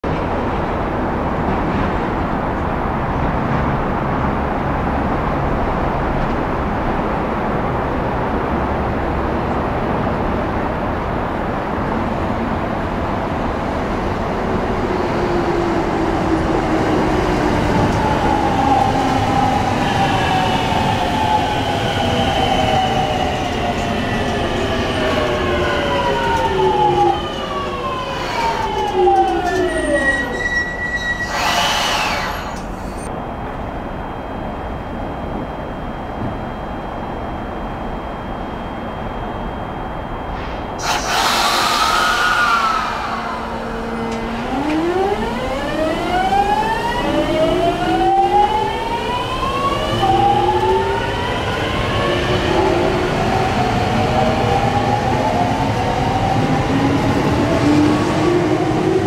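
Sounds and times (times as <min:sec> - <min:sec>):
train rumbling: 0:00.0 - 0:59.0.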